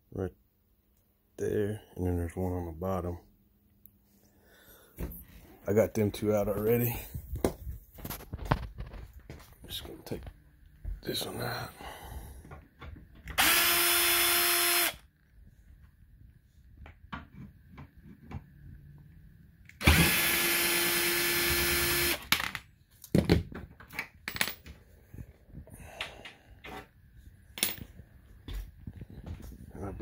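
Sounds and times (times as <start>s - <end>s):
cordless drill driving screws: 13.4s - 15.0s, 19.8s - 22.3s.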